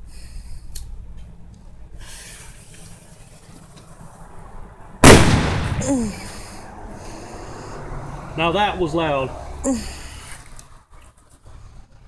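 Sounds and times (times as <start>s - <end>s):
rumbling echo: 5.0s - 6.2s
firecracker bang: 5.0s - 6.3s.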